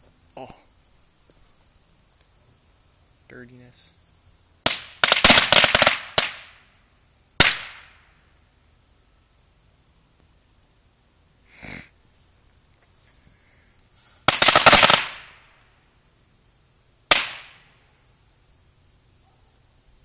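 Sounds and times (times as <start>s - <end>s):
firecrackers cracking: 4.6s - 9.1s, 9.7s - 18.6s
firecracker bang: 4.7s - 6.7s, 7.4s - 8.2s, 14.2s - 15.6s, 17.1s - 17.8s.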